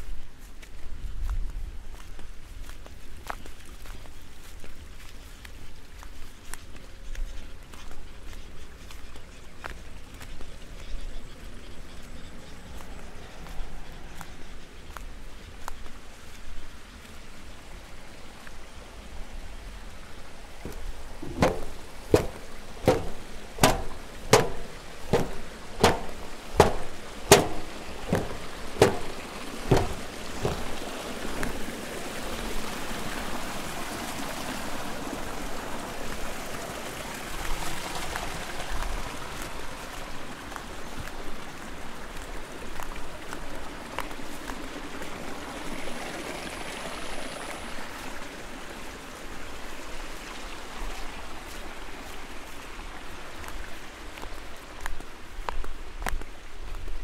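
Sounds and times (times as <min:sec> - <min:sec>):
water trickling: 0:16.2 - 0:55.6
footsteps on metal stairs: 0:20.6 - 0:31.5.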